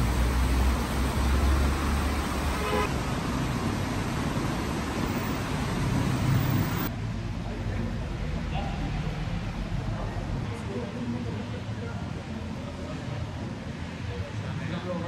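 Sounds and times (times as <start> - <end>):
street traffic rumble: 0.0 - 15.0
vehicle horn toot: 2.5 - 2.9.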